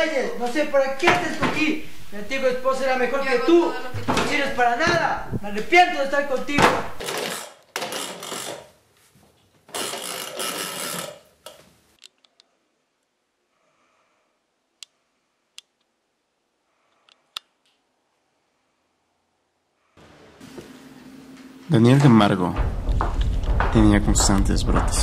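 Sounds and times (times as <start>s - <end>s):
toy car rolling on wooden floor: 7.0s - 8.8s, 9.7s - 11.6s.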